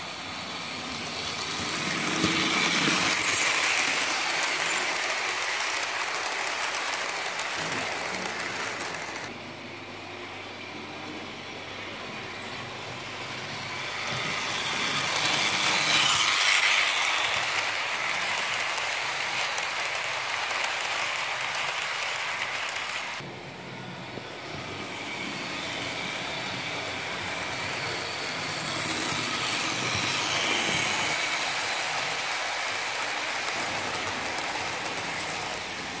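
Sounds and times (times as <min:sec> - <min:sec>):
model train rolling on track: 0:00.0 - 0:36.0.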